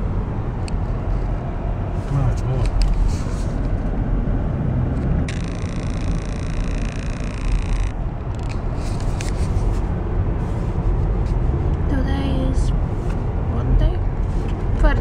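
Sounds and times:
car engine and road noise: 0.0 - 15.0
high steady squeal: 5.3 - 9.0.

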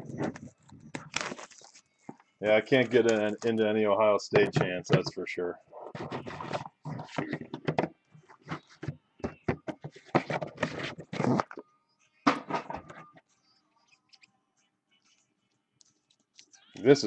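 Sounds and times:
card box being opened: 0.1 - 1.9, 9.8 - 11.6.

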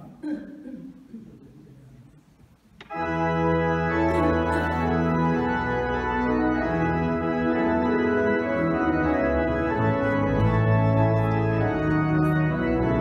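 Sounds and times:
organ playing sustained chords: 2.8 - 13.0.

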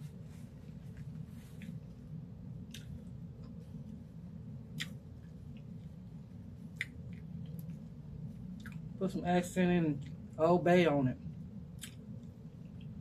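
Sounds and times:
low hum: 0.0 - 13.0
chewing: 2.6 - 3.6, 8.6 - 8.9.

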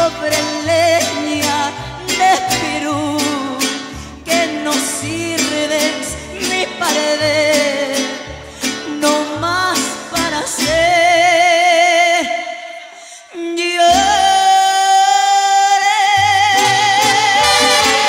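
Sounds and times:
strummed and plucked guitars: 0.0 - 11.5, 16.2 - 18.0
woman singing: 0.0 - 18.0
violins: 16.6 - 18.0.

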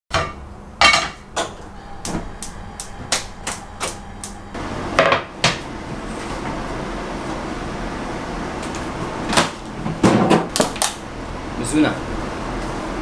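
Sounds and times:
gas burner hissing: 1.4 - 9.3.

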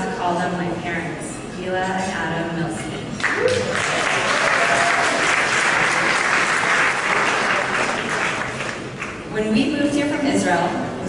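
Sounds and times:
audience applauding: 3.2 - 9.3.

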